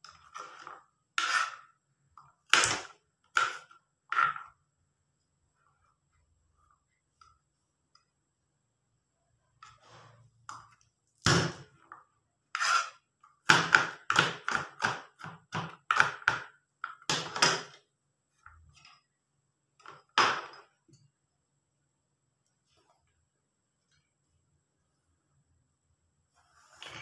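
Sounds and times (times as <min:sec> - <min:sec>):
knife chopping on plastic board: 0:13.5 - 0:17.8.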